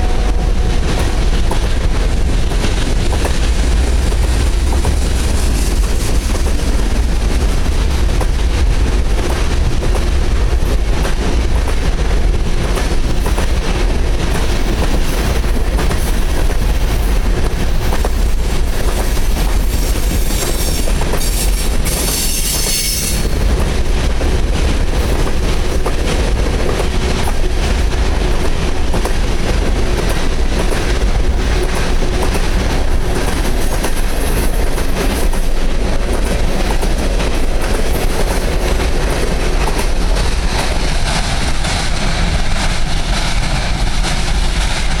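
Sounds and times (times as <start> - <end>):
train wheels clattering on rails: 0.0 - 45.0
high-pitched wheel screech: 21.4 - 23.3.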